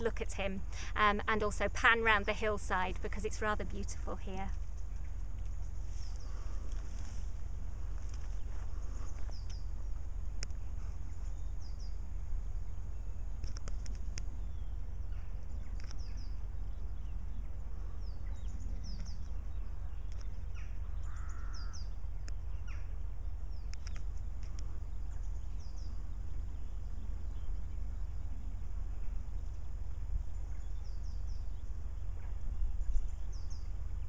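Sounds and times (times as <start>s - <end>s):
low rumble: 0.0s - 34.0s
small birds chirping: 0.0s - 34.0s
crow-like caw: 21.0s - 21.9s.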